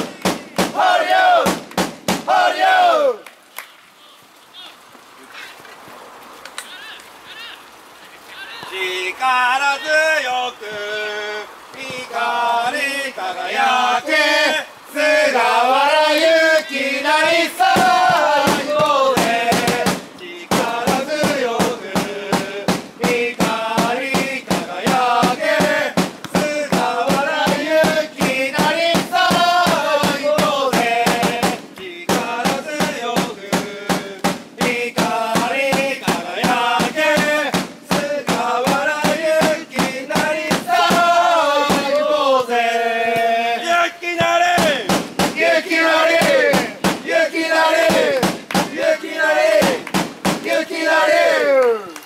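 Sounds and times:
crowd chanting in unison: 0.0 - 1.6, 2.2 - 3.2, 8.7 - 51.8
steady drum beat: 0.0 - 2.4, 17.3 - 42.2, 44.2 - 50.6
crowd shouting: 0.7 - 1.5, 2.2 - 3.2, 11.9 - 19.9, 20.6 - 31.4, 32.2 - 52.0.

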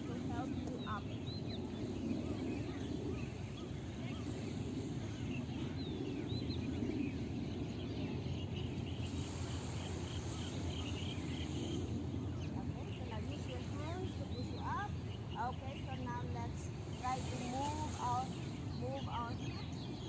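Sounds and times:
low background noise: 0.0 - 20.0.

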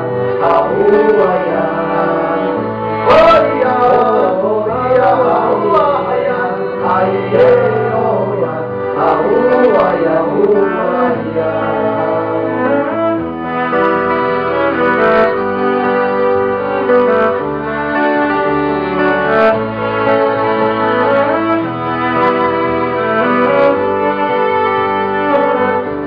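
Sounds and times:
man singing: 0.0 - 13.2
cello bowed notes: 0.0 - 26.0
violin bowed notes: 0.0 - 26.0.

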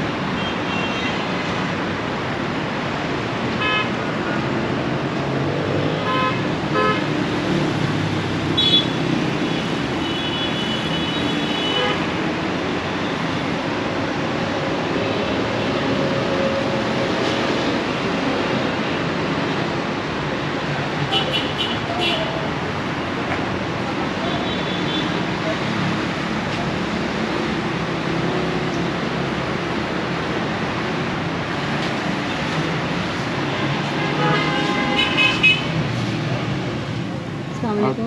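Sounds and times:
road traffic passing: 0.0 - 38.0.

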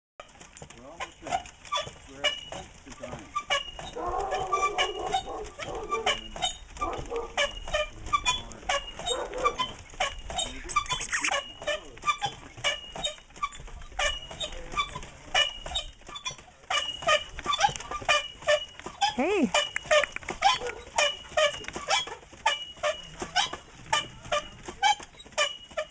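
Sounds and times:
dogs barking and yelping: 3.9 - 6.2, 6.8 - 7.5, 9.0 - 9.8, 20.4 - 21.2.

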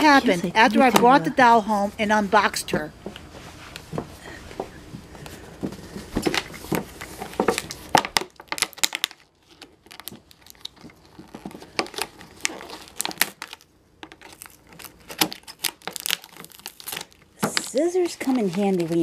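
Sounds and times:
plastic and cardboard crinkling: 5.1 - 19.0.

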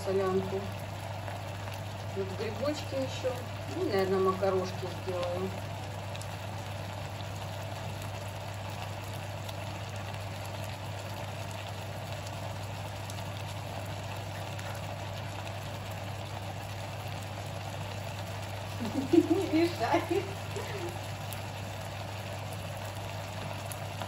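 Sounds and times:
mushrooms sizzling in frying pan: 0.0 - 24.0
steady low hum: 0.0 - 24.0.

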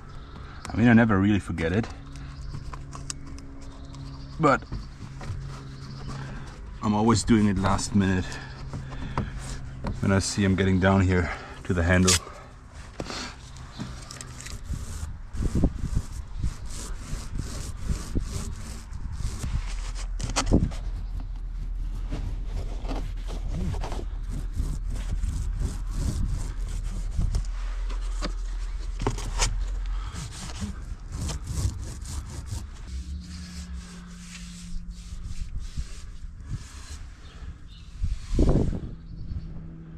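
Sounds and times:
low rumble: 1.8 - 39.9
paintbrush scrubbing: 13.8 - 20.2, 20.8 - 29.4, 30.0 - 38.5.

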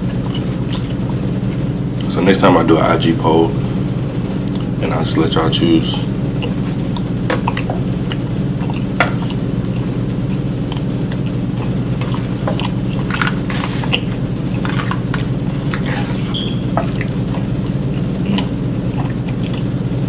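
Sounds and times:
chewing: 0.0 - 2.1, 4.4 - 4.8, 6.3 - 19.8
steady low hum: 0.0 - 20.0.

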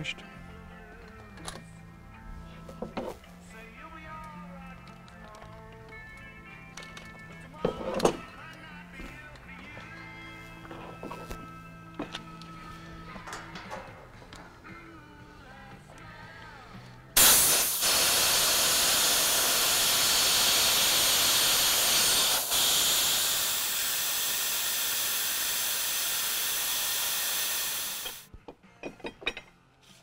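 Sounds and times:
compressed air hissing: 16.5 - 28.3.

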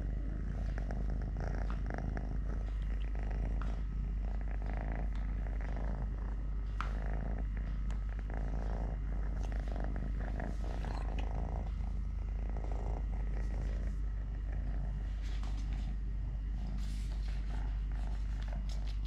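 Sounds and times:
kitten purring: 0.0 - 19.0.

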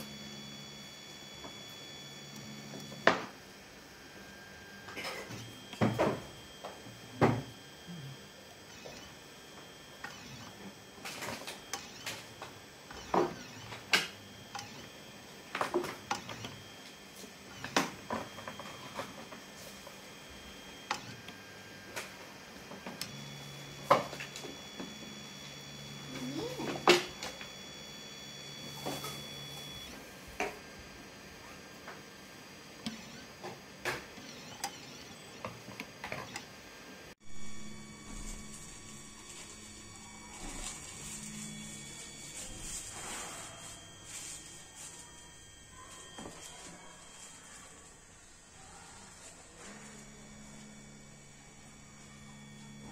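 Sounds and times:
stepper motors whining: 0.0 - 30.5, 31.6 - 36.6, 37.3 - 52.9.

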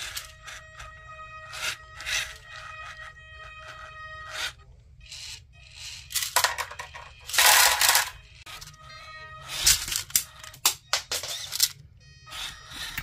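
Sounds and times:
electric servo motor whine: 0.0 - 6.1, 12.1 - 13.0
stones clattering in a toy bucket: 6.2 - 8.1.

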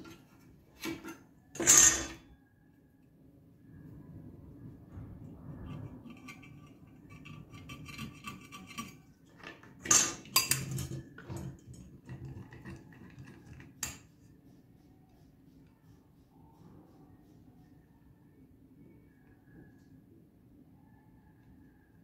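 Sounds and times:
metal pipes clinking and knocking: 0.0 - 2.2, 5.6 - 14.0.

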